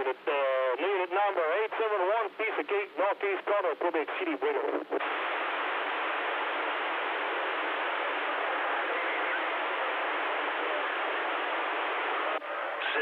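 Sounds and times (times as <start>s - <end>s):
radio static hiss: 0.0s - 13.0s.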